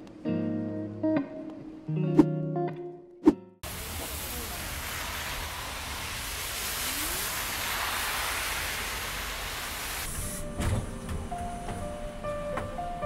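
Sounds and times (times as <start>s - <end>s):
soft music with held notes: 0.0s - 3.6s, 10.4s - 13.0s
tyres hissing on wet road: 3.6s - 10.9s.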